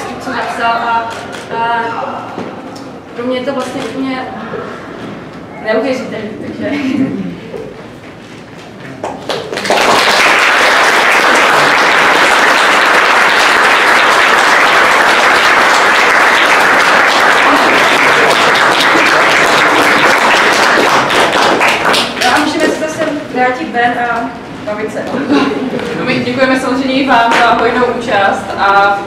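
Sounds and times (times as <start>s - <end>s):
audience applauding: 9.0s - 23.0s.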